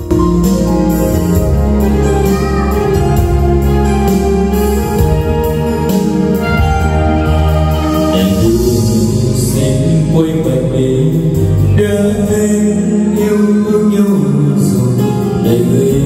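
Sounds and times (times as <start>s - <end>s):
musical backing track: 0.0s - 16.0s
man singing into a microphone: 7.8s - 16.0s.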